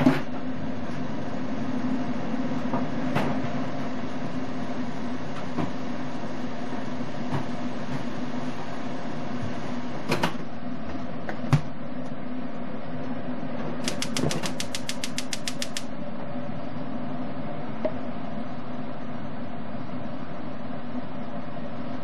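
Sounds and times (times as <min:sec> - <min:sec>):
rapid even ticking: 0:13.8 - 0:15.9
sharp clicks: 0:13.8 - 0:15.9.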